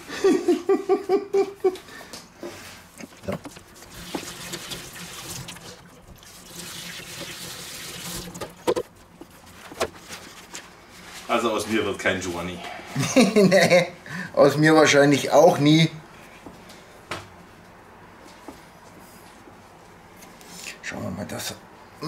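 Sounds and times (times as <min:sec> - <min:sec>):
water running from tap: 0:03.4 - 0:08.8.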